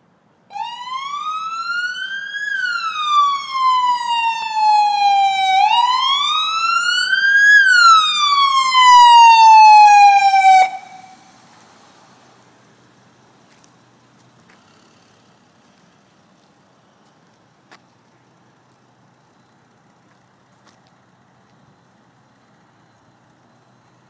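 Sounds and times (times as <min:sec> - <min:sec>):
police siren wailing: 0:00.5 - 0:11.4.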